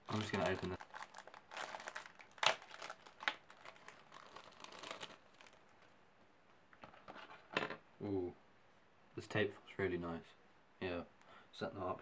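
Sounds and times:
plastic packet crinkling and tearing: 0.0 - 5.9.

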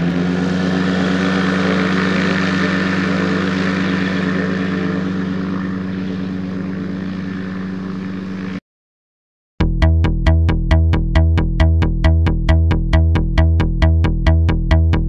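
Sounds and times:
gyroplane engine and propeller drone: 0.0 - 8.6.

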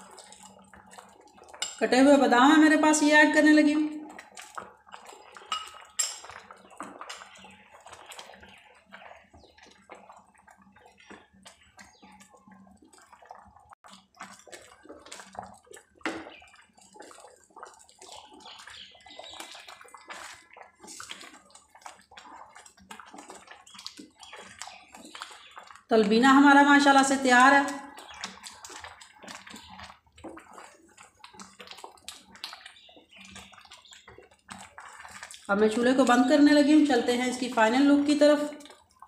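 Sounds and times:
porridge bubbling and popping: 0.0 - 39.0.

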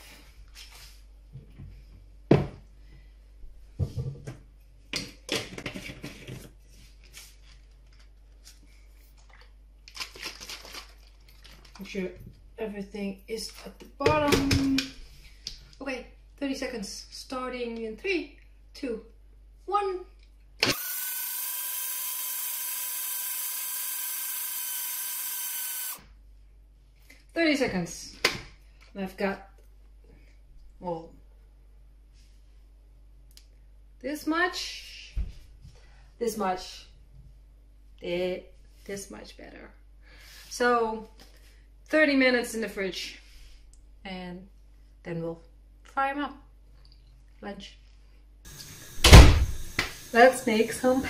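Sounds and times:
electric blender running: 20.6 - 26.0, 48.5 - 51.0.

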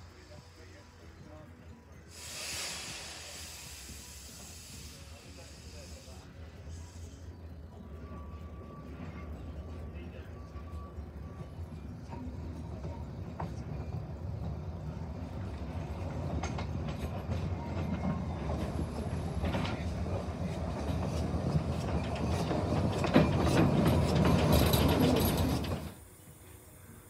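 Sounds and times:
steam locomotive passing: 0.0 - 27.0
wheels clicking over rail joints: 10.6 - 26.0.

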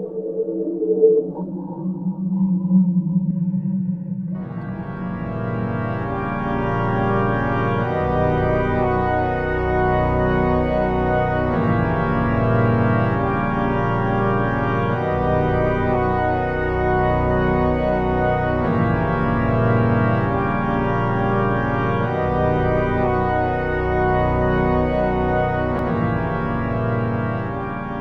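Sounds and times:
slow sustained organ chords: 0.6 - 28.0.

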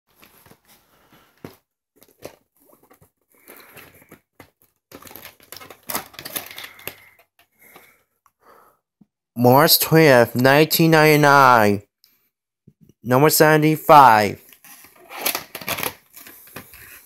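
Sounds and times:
plastic case rustling and scraping: 0.1 - 7.9, 14.6 - 17.0.

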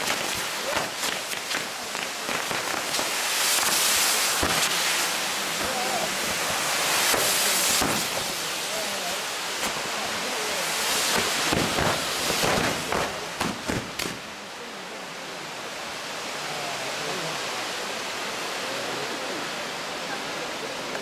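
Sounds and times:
firework cracks: 0.0 - 14.3
firework sparks hissing: 0.0 - 14.3.

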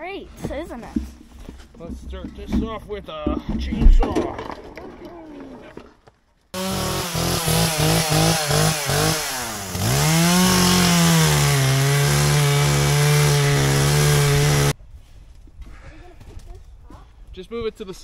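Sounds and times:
chainsaw revving: 6.6 - 14.7.

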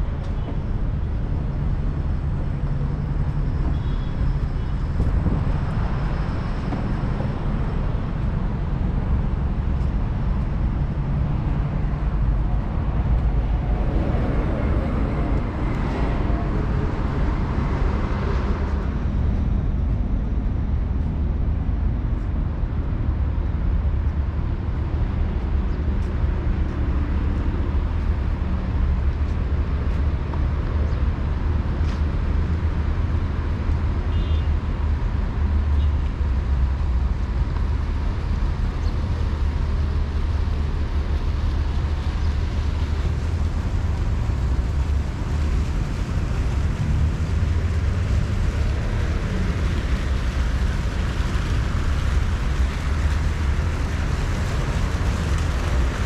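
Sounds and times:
traffic rumble: 0.0 - 56.0.

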